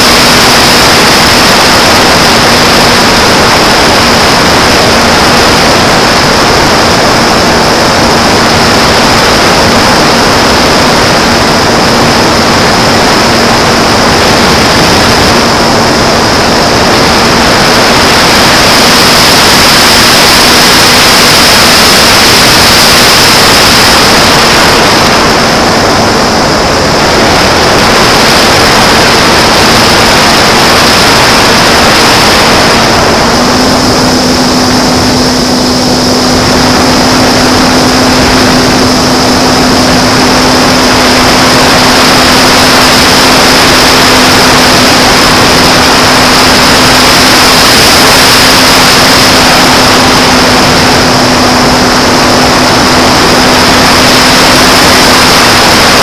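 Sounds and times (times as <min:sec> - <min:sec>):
electric motor and propeller drone: 0:00.0 - 0:56.0
thin high whine: 0:00.0 - 0:56.0
wind rushing noise: 0:00.0 - 0:56.0.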